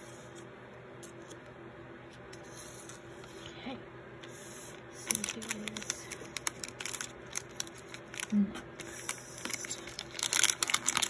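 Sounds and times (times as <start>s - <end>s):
foil pouch crinkling: 5.0s - 11.0s.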